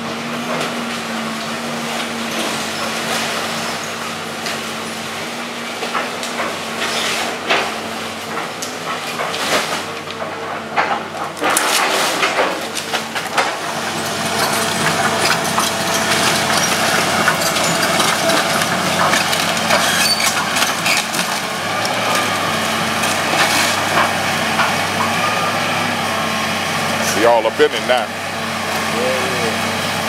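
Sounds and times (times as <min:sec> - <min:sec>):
excavator engine running: 0:00.0 - 0:30.0
timber cracking and splintering: 0:08.4 - 0:25.1
debris crashing down: 0:08.8 - 0:25.1.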